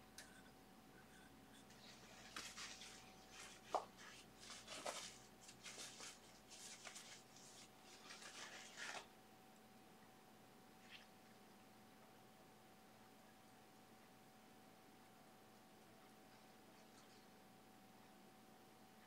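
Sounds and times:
brush rubbing strokes: 1.1 - 9.1.

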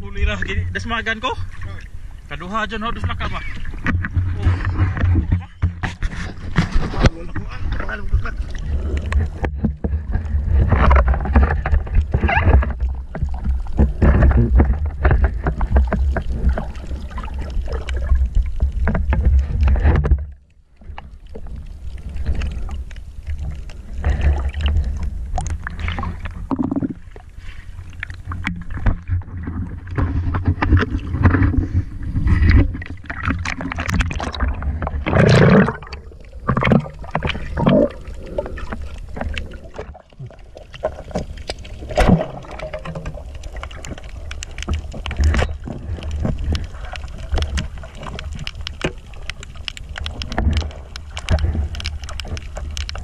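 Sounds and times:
low rumble of water: 0.0 - 53.0
water sloshing and splashing: 0.0 - 53.0
microphone handling noise: 2.9 - 20.4, 23.9 - 27.5, 28.2 - 40.3.

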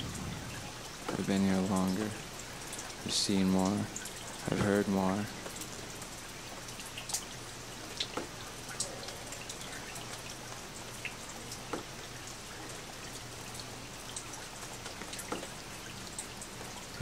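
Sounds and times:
steady hiss: 0.0 - 5.9
water dripping: 0.0 - 17.0.

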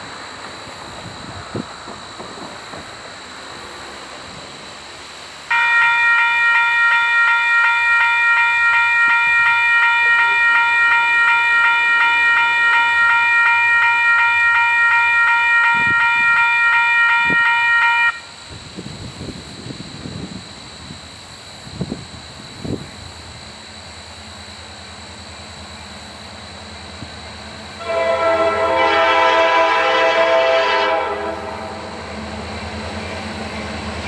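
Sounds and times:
locomotive air horn blast: 5.5 - 18.3, 27.8 - 32.0.

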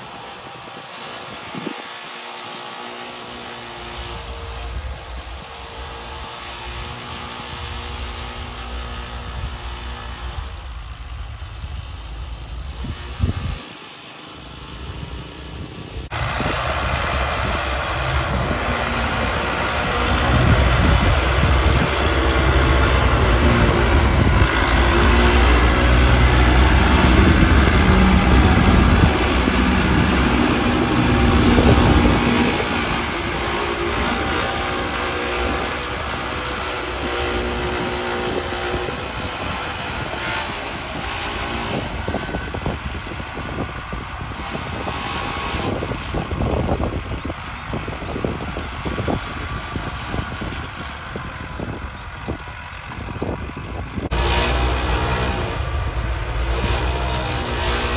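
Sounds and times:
tractor diesel engine under load: 0.0 - 57.9.

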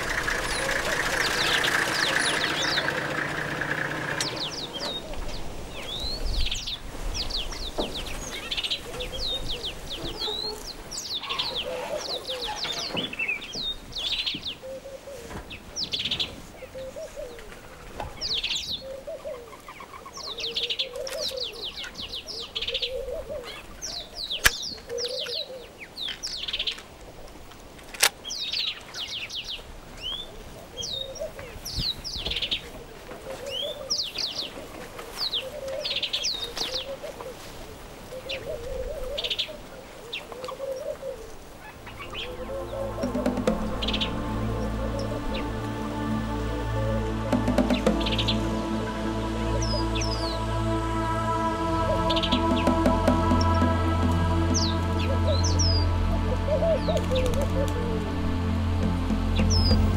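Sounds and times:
vehicle engine idling: 0.0 - 6.2, 41.8 - 59.9
birds chirping and warbling: 0.0 - 26.9, 28.2 - 37.5, 38.1 - 58.1, 58.9 - 59.9.

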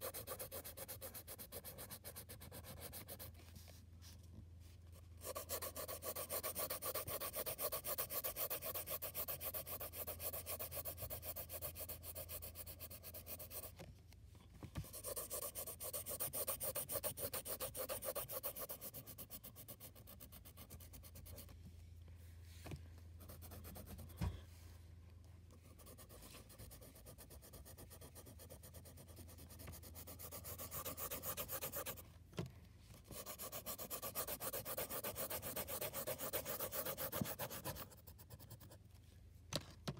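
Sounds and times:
pencil scratching on paper: 0.0 - 3.3, 5.2 - 13.7, 14.8 - 21.5, 23.2 - 24.2, 25.7 - 32.0, 33.1 - 38.8.

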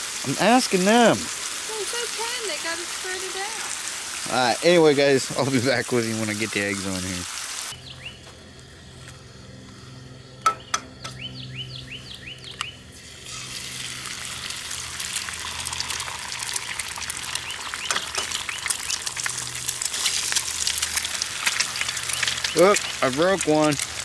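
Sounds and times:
eggs sizzling in grease: 0.0 - 7.8, 12.5 - 24.0
egg cracking: 12.5 - 24.0.

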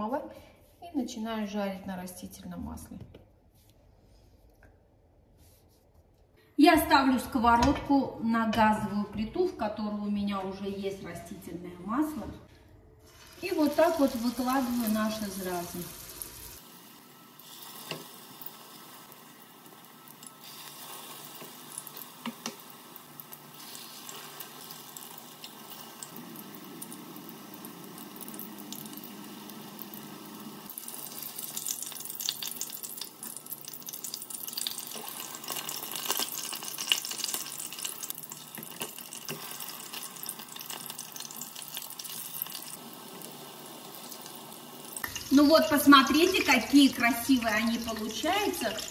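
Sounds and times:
patties sizzling in oil: 13.0 - 48.9.

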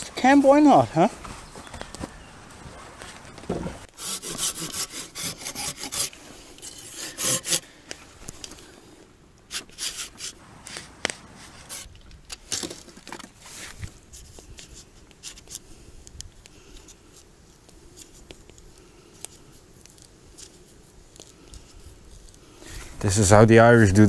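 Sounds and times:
saw blade rasping on bark: 3.8 - 7.8, 9.5 - 11.9.

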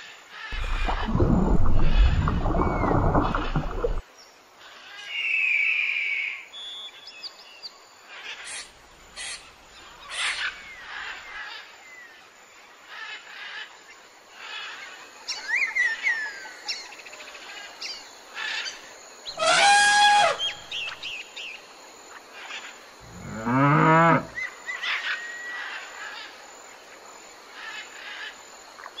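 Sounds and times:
birds chirping: 0.6 - 4.0
cow mooing: 23.1 - 24.3.

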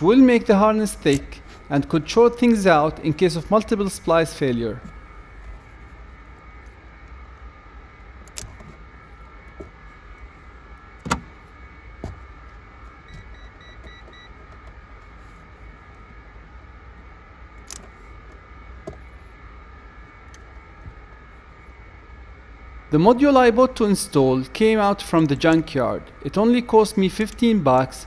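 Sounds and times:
steady low hum: 0.0 - 28.0
wire stripper clicking: 1.0 - 1.4, 8.2 - 8.7, 17.6 - 19.0.

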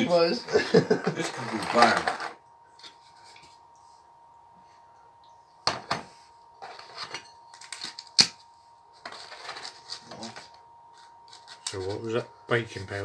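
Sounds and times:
rustling and scraping: 1.2 - 3.7, 6.1 - 12.2.

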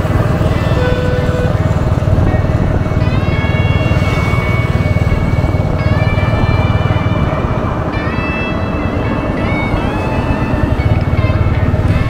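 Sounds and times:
motorcycle engine cruising: 0.0 - 12.0.

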